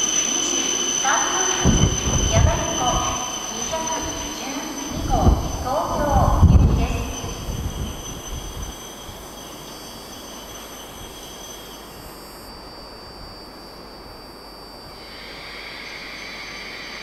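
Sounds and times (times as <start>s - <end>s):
train rushing sound: 0.0s - 11.8s
steady hiss: 0.0s - 17.0s
thin high whines: 0.0s - 17.0s
low rumble: 1.6s - 8.6s.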